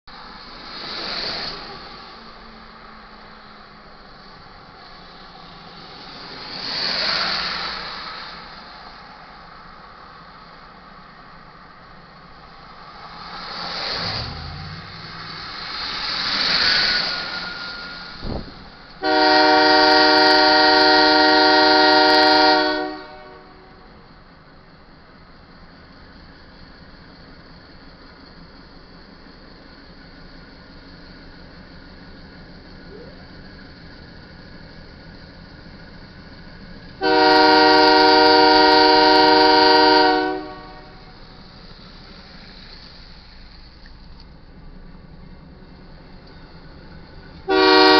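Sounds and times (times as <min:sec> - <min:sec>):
vehicles passing on slushy road: 0:00.1 - 0:47.9
train horn blast: 0:19.0 - 0:23.9, 0:37.0 - 0:41.2, 0:47.5 - 0:47.9.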